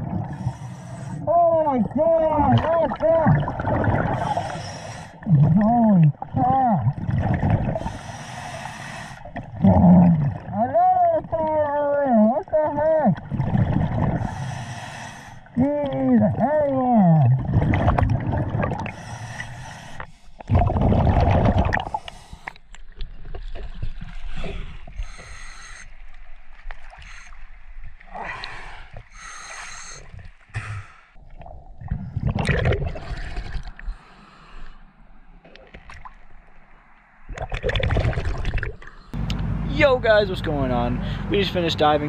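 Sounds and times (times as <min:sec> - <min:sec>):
water sloshing and gurgling: 0:00.0 - 0:39.2
diver breathing: 0:00.3 - 0:01.3, 0:04.0 - 0:05.3, 0:07.8 - 0:09.4, 0:14.2 - 0:15.6, 0:18.8 - 0:20.5, 0:21.8 - 0:22.6, 0:24.3 - 0:26.1, 0:26.9 - 0:31.2, 0:33.8 - 0:35.1.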